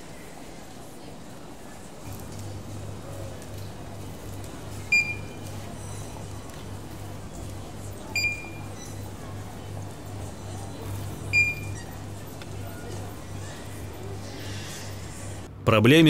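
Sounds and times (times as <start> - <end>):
barcode scanner beeping: 4.9 - 5.4, 8.2 - 8.8, 11.3 - 11.9.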